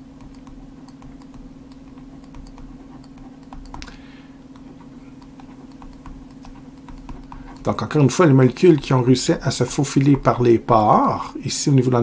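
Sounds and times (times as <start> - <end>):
stylus tapping on tablet: 0.0 - 7.8, 8.4 - 9.0
steady low hum: 0.0 - 12.0.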